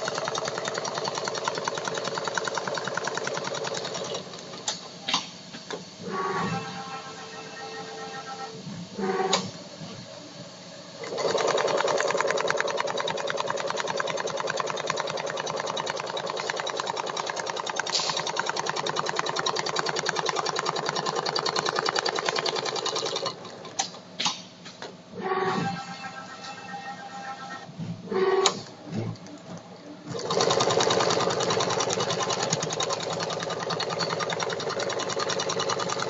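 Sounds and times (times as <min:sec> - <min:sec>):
sewing machine stitching rapidly: 0:00.0 - 0:04.3, 0:11.0 - 0:23.7, 0:30.1 - 0:36.0
sharp machine clicks: 0:00.0 - 0:04.3, 0:11.0 - 0:23.9, 0:30.2 - 0:36.0.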